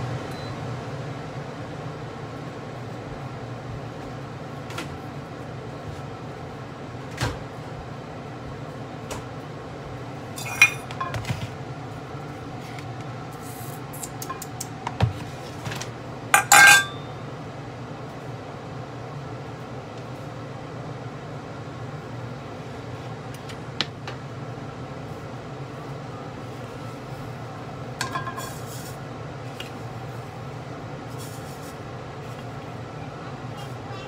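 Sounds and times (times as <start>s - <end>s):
steady low hum: 0.0s - 34.0s
pot lid and bowl clinking: 10.4s - 11.2s, 16.4s - 17.0s.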